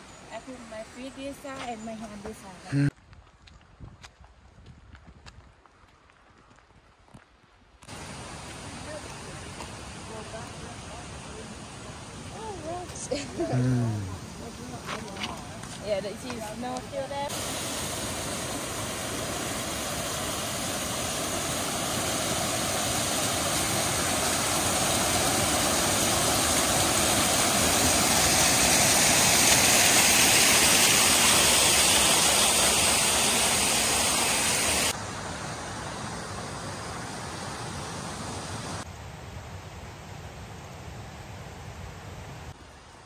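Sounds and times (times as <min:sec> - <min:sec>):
waterfall cascading over rocks: 0:07.9 - 0:38.8.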